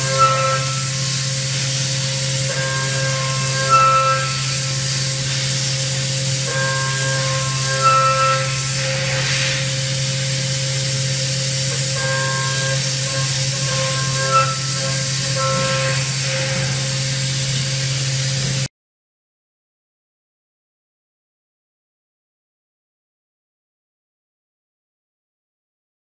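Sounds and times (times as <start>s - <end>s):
high cutting tones: 0.0s - 10.0s, 11.7s - 17.0s
coolant spray hissing: 0.8s - 2.5s, 4.4s - 7.7s, 8.5s - 12.0s
spindle hum: 11.6s - 18.6s.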